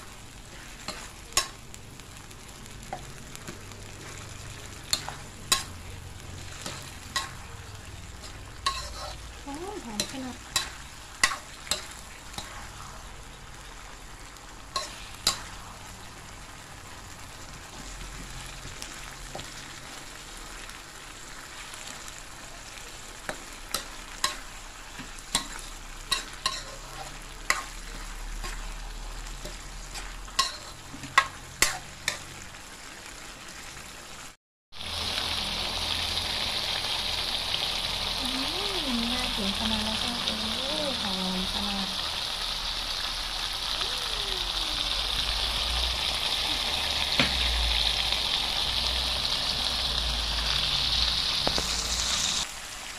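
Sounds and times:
food sizzling in wok: 0.0s - 52.9s
metal spatula scraping wok: 0.4s - 1.6s, 3.4s - 13.1s, 14.7s - 15.9s, 23.3s - 32.3s.

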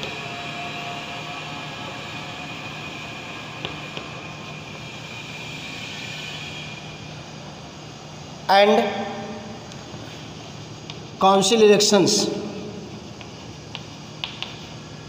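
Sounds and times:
steady low hum: 0.0s - 15.0s
chalk tapping: 13.2s - 14.8s.

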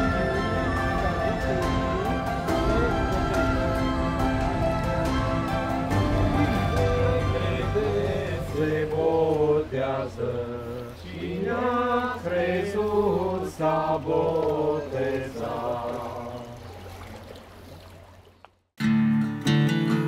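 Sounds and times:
low drone: 0.0s - 11.2s
person singing chant-like melody: 0.0s - 16.8s.

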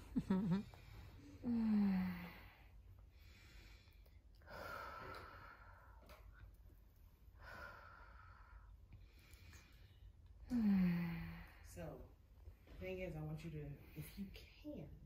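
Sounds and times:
faint low hum: 0.0s - 15.0s
person breathing slowly: 0.7s - 6.2s, 7.4s - 11.7s.

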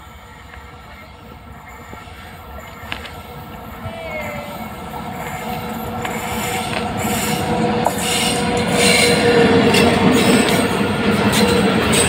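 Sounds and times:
locomotive whine: 0.0s - 12.0s
wheel-on-rail noise: 0.0s - 12.0s
wheel squeals: 4.1s - 12.0s.

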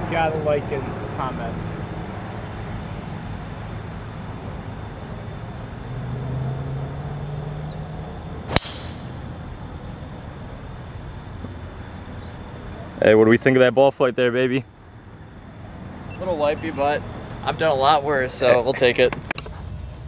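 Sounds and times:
high-pitched insect hum: 0.0s - 19.0s
golf club striking ball: 8.5s - 9.4s.

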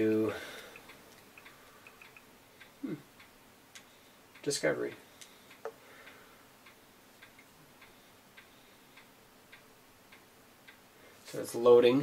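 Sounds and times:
faint even ticking: 0.0s - 11.3s.

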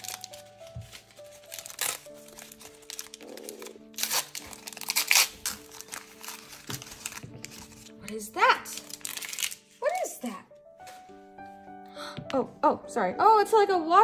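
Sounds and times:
plastic wrapping crinkling: 0.0s - 11.1s
light background music: 0.0s - 14.0s.

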